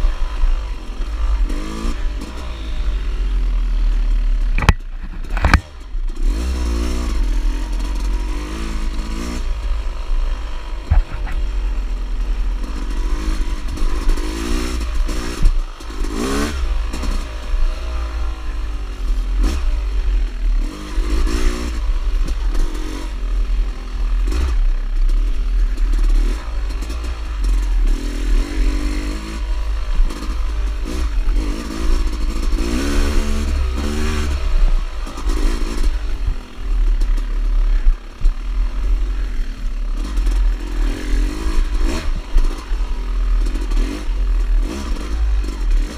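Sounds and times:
dirt bike engine revving: 0.0s - 45.9s
bike knocks and rattles: 4.5s - 5.8s, 10.8s - 11.7s.

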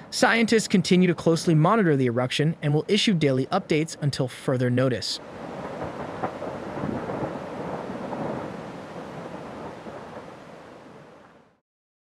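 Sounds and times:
lava fountain rushing and spattering: 5.2s - 11.3s.

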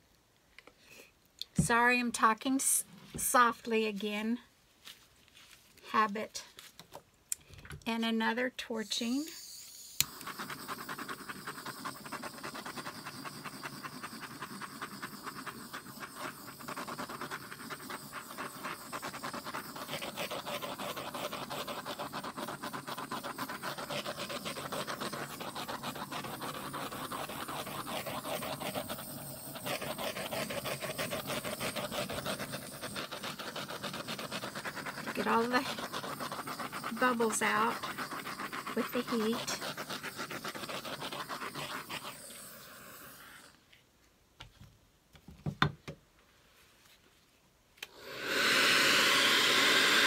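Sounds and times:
torch flame hissing: 9.0s - 43.6s, 47.9s - 50.0s.

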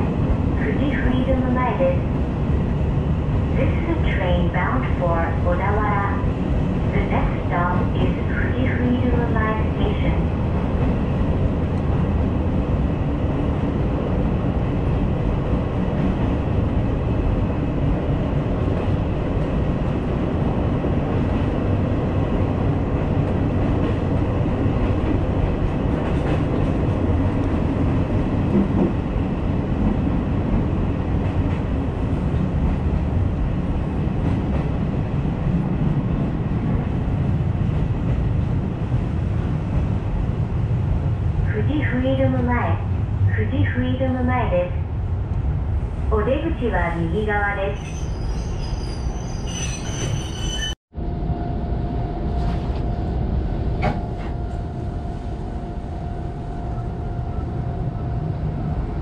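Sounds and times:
train wheels rumbling on rails: 0.0s - 43.8s.

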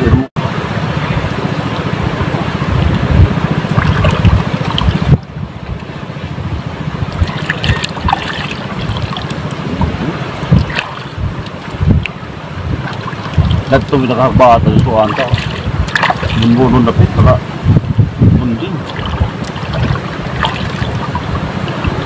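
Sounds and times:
wind buffeting the microphone: 0.0s - 22.0s.

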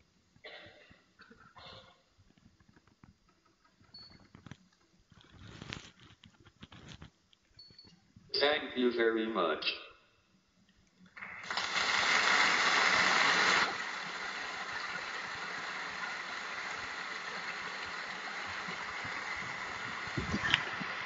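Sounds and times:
audience applause: 11.2s - 21.0s.

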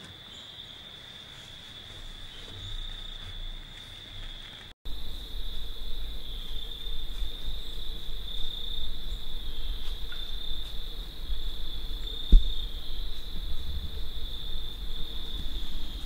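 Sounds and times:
crickets trilling: 0.0s - 16.0s
low rumble: 4.9s - 16.0s
thump: 12.3s - 12.7s.

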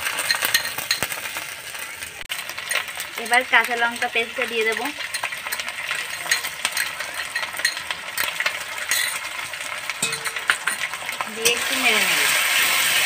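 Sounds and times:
onions sizzling in oil: 0.0s - 13.0s
spoon clinking against metal: 0.2s - 1.2s, 2.6s - 9.4s, 10.0s - 11.7s.

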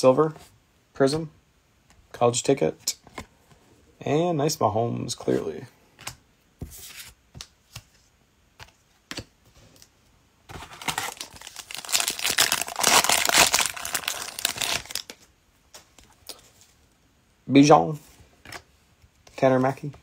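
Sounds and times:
foil card pack crinkling: 10.6s - 15.2s.

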